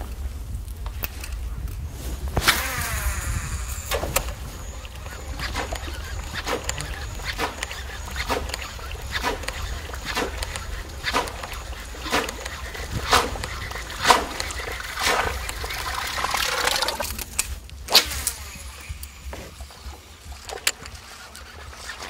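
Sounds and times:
lure splashing on water: 3.8s - 18.8s.

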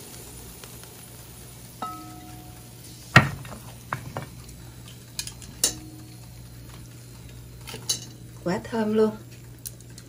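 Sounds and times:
glass and ceramic clinking: 1.8s - 2.6s.

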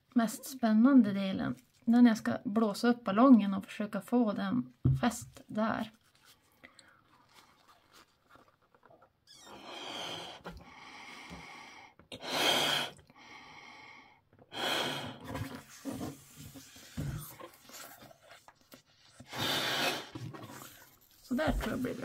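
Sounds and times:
person blowing up balloon: 9.3s - 10.6s, 12.1s - 13.1s, 14.5s - 18.2s, 19.2s - 21.0s.

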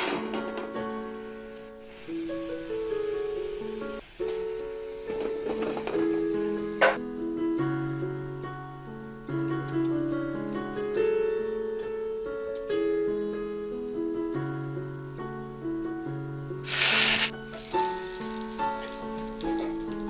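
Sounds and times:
loud burst of hiss: 1.1s - 7.0s, 16.5s - 18.4s.

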